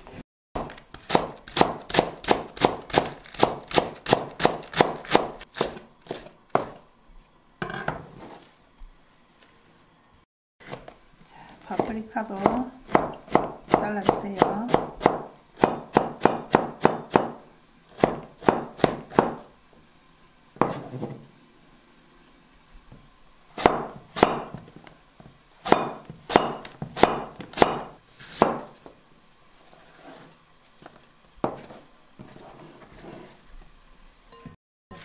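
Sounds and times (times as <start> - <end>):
knife chopping on cutting board: 0.6 - 6.8, 10.6 - 11.0, 11.7 - 19.5, 20.6 - 21.2, 23.6 - 24.7, 25.6 - 28.8, 31.4 - 33.3.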